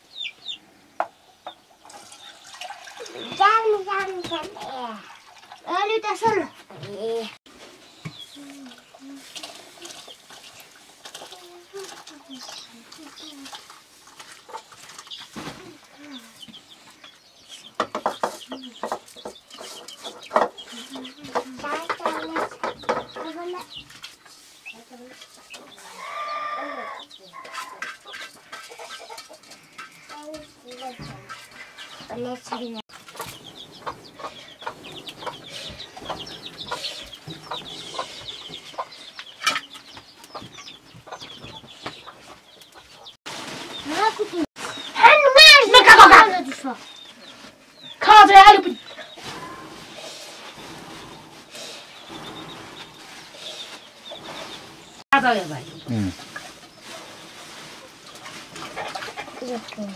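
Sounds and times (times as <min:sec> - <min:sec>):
chickens clucking: 0:00.0 - 0:59.9
chicks peeping: 0:00.0 - 0:59.9.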